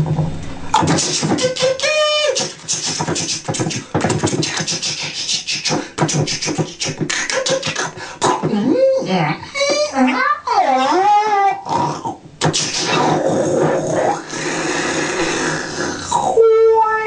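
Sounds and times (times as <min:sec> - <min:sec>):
man beatboxing: 0:00.7 - 0:09.0, 0:11.0 - 0:16.4.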